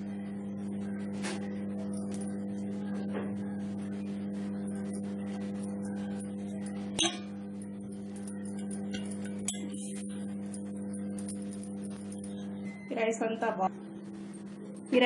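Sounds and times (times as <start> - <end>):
steady low hum: 0.0 - 15.0
sharp clink: 7.0 - 7.4, 8.3 - 10.0.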